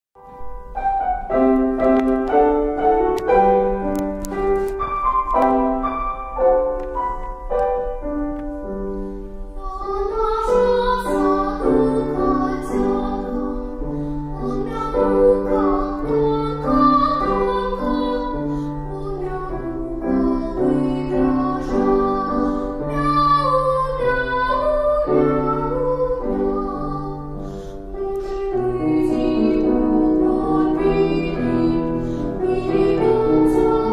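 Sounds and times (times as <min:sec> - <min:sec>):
instrumental melody: 0:00.2 - 0:33.9
girl singing children's song: 0:09.5 - 0:33.9.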